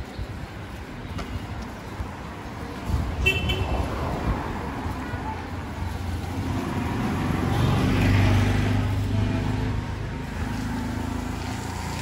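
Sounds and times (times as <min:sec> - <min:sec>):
vehicle engine passing by: 0:06.3 - 0:12.0.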